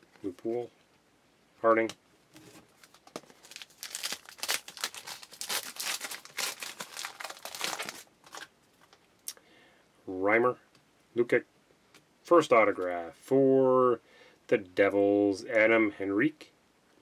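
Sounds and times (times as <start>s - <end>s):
plastic crinkling: 2.3s - 9.1s.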